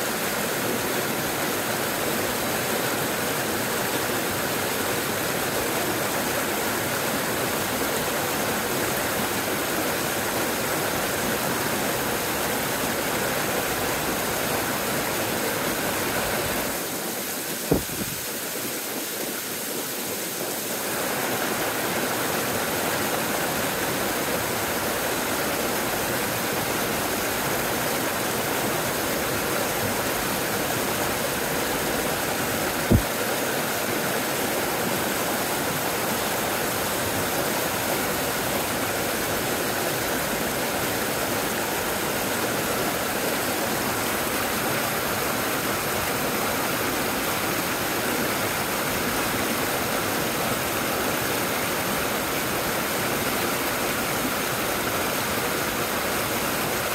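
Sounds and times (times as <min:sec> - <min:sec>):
water rushing over rocks: 0:00.0 - 0:56.9
low thump: 0:17.7 - 0:18.2, 0:32.9 - 0:33.1.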